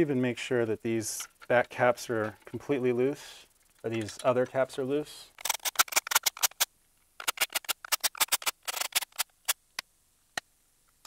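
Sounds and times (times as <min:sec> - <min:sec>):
ratchet clicking: 0:05.4 - 0:09.3.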